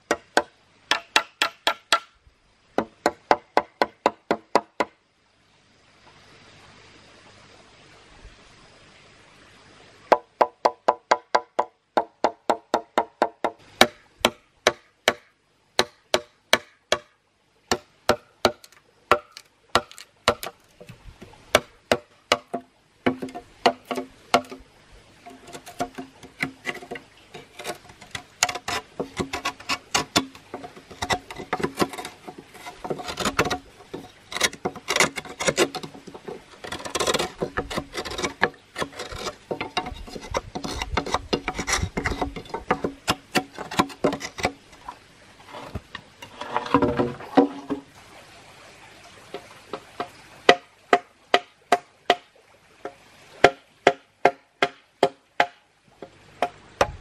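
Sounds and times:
knife chopping bamboo: 12.2s - 17.1s, 21.5s - 24.6s, 53.4s - 55.6s
scraping bamboo: 17.7s - 47.9s.

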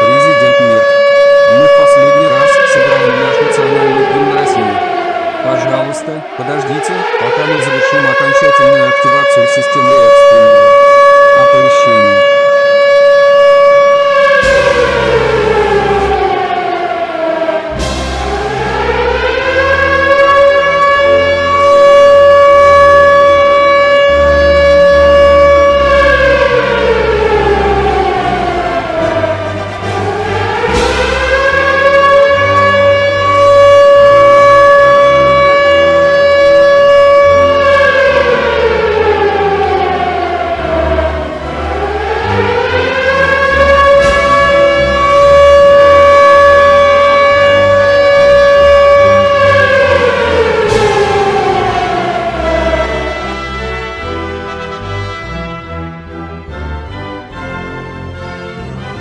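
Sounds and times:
civil defense siren: 0.0s - 59.0s
low sustained notes: 0.0s - 59.0s.

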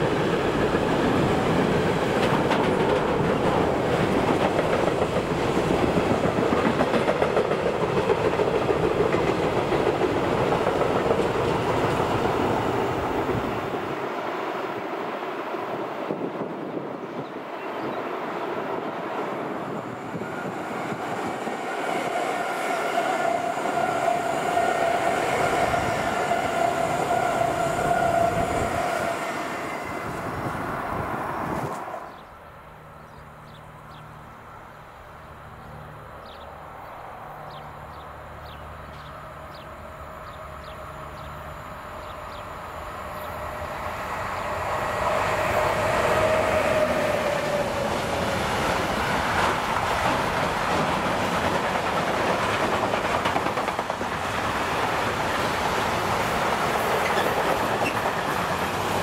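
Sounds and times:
distant freight train: 0.0s - 59.0s
electric train passing with whine: 0.0s - 59.0s.

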